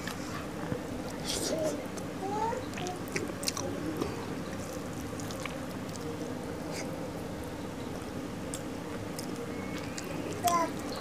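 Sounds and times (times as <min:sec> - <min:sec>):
low background hum: 0:00.0 - 0:11.0
chewing: 0:02.7 - 0:06.9.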